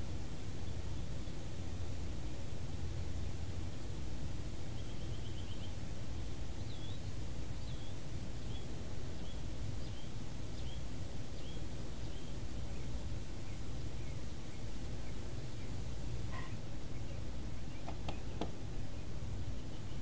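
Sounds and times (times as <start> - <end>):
low background hum: 0.0 - 20.0
small bird chirping: 4.6 - 20.0.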